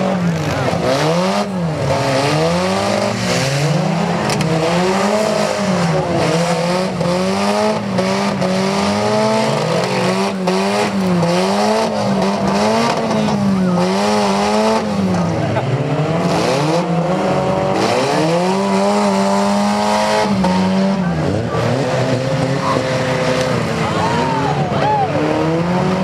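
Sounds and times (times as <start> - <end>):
car engines revving: 0.0 - 26.0
engine and wheel noise: 0.0 - 26.0.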